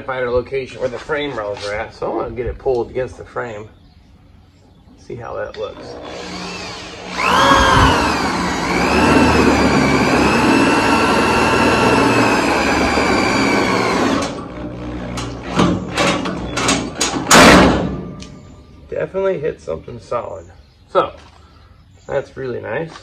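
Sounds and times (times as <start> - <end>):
drill motor whining: 5.6 - 16.6
drill clicks and bursts: 5.8 - 16.3.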